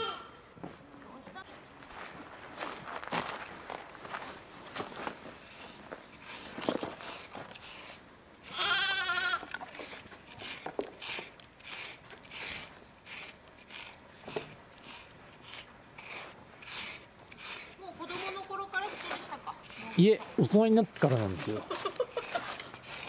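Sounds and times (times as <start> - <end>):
stick rasping on bristles: 5.4 - 23.0.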